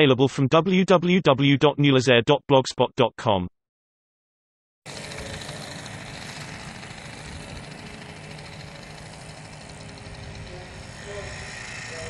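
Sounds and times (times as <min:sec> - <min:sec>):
small two-stroke engines buzzing: 0:04.9 - 0:12.0.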